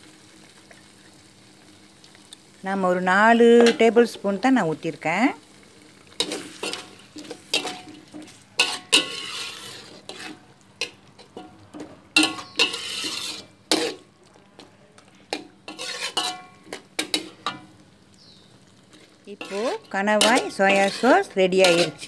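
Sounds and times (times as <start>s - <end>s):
food sizzling: 0.0s - 22.0s
spatula scraping a steel wok: 6.2s - 14.1s, 15.3s - 17.6s, 18.9s - 22.0s.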